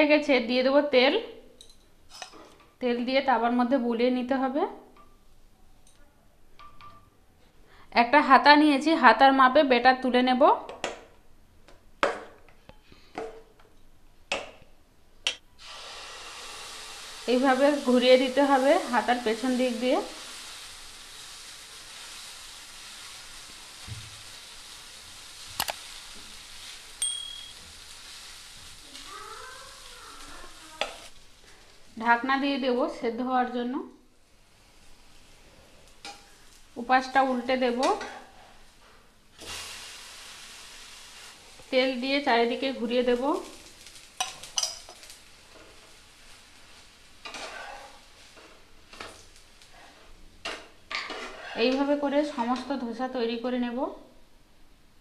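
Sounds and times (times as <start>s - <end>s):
batter sizzling in pan: 15.6s - 53.1s
short high bell ding: 27.0s - 27.6s
spatula scraping pan: 44.2s - 52.7s.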